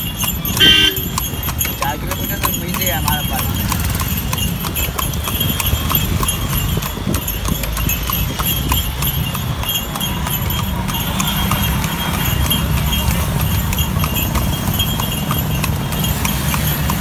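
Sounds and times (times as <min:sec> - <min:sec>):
horse hooves clip-clopping on pavement: 0:00.0 - 0:17.0.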